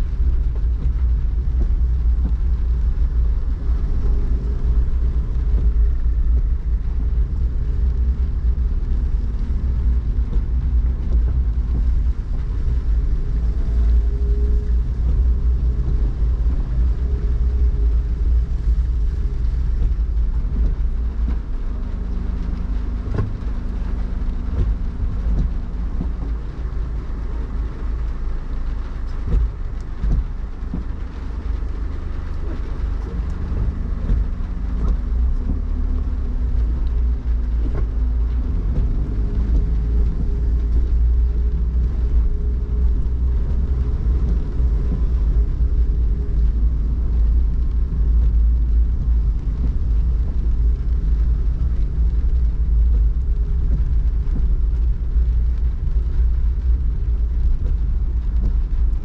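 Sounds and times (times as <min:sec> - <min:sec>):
light rain hiss: 0:00.0 - 0:59.0
traffic rumble: 0:00.0 - 0:59.0.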